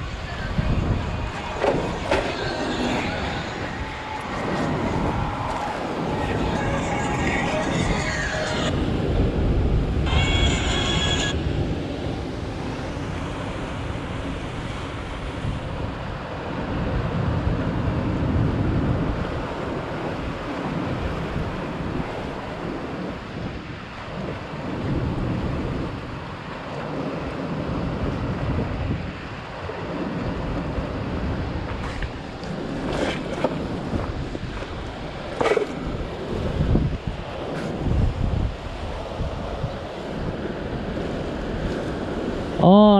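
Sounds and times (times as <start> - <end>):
wind rumbling on microphone: 0.0 - 42.9
surf breaking on rocks: 29.3 - 42.7.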